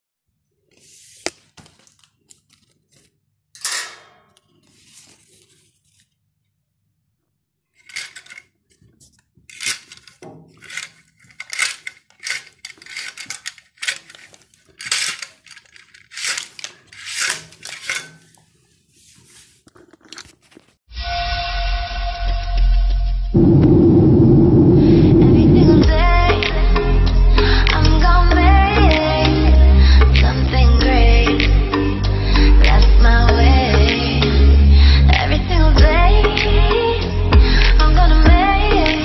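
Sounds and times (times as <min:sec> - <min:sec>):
paper blind crinkling: 0:00.7 - 0:03.2, 0:04.4 - 0:06.3, 0:07.8 - 0:20.8.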